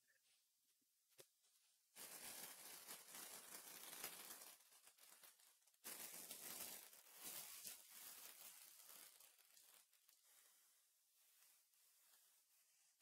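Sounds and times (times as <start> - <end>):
packaging crinkling and tearing: 2.0 - 10.1.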